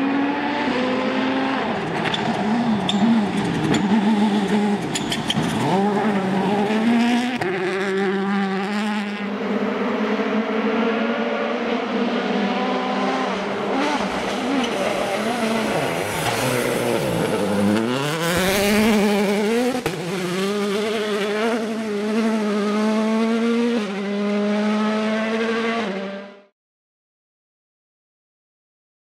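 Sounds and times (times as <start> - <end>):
rally car engine revving: 0.0 - 26.5
gravel spray and tyre noise: 13.9 - 21.9.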